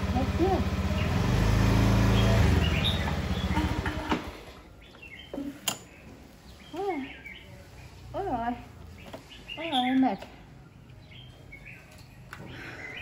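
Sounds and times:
scooter engine idling: 0.0s - 4.6s
chirping calls: 2.1s - 3.9s.

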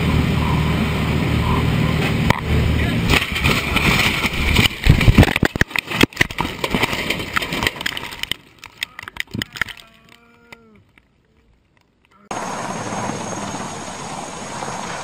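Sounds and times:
cracks and bangs: 2.0s - 9.9s
loud rush of noise: 12.3s - 15.0s.

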